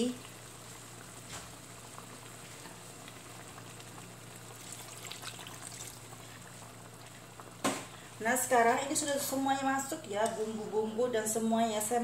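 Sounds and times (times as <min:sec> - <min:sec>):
stew bubbling: 0:00.2 - 0:08.2
water pouring into wok: 0:04.4 - 0:06.5.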